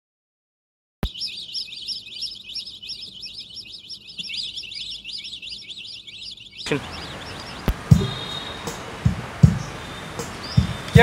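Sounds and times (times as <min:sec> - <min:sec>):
birds chirping: 0:01.0 - 0:11.0.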